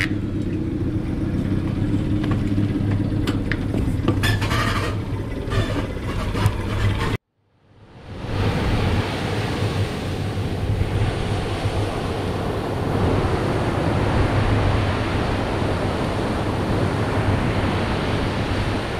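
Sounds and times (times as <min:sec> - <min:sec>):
wind rumbling on microphone: 0:00.0 - 0:18.9
ocean surf breaking: 0:07.8 - 0:18.9.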